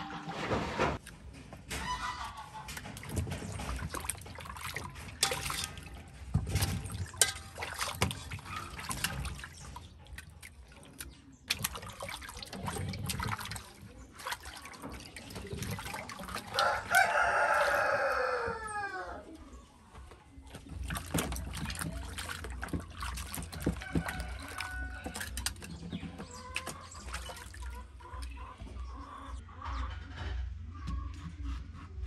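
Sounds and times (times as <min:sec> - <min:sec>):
water trickling and dripping: 0:02.6 - 0:29.0
hands splashing in water: 0:02.7 - 0:18.8, 0:20.5 - 0:28.3
chicken calling: 0:16.4 - 0:19.4.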